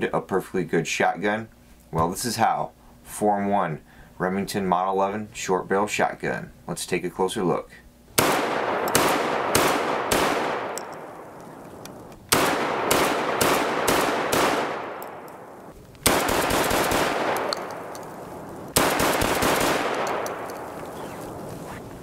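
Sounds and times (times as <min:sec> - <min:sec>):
rolling echo of gunshots: 0:08.2 - 0:11.5, 0:12.3 - 0:21.2
shotgun shots: 0:08.2 - 0:11.5, 0:12.3 - 0:21.2.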